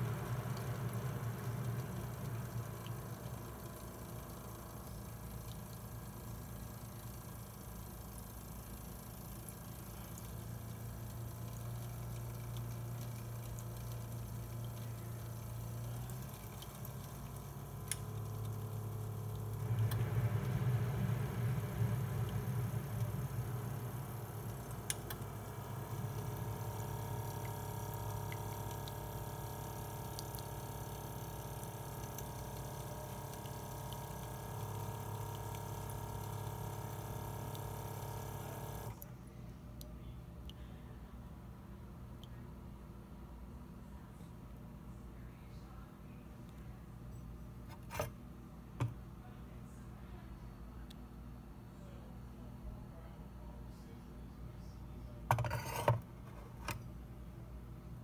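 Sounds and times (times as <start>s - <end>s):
coffee maker pump hum: 0.0s - 40.7s, 45.2s - 49.3s, 51.8s - 57.0s
water trickling into a mug: 0.1s - 6.4s, 9.4s - 20.6s, 22.0s - 38.9s.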